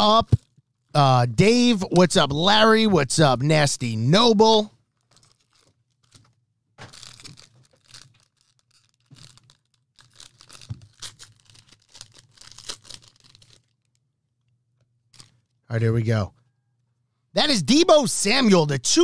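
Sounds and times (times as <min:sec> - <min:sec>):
foil wrapper tearing and crinkling: 0:04.9 - 0:14.0, 0:15.1 - 0:15.4.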